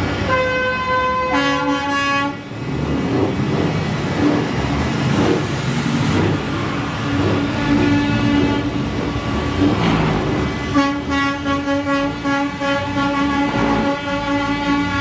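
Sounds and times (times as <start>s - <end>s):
truck and street noise: 0.0s - 15.0s
truck air horn chord: 0.3s - 2.4s, 10.7s - 15.0s.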